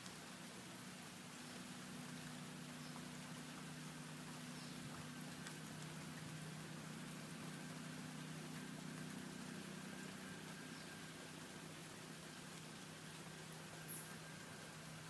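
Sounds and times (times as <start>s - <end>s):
steady low hum: 0.1s - 15.0s
faint ticks: 4.3s - 6.4s.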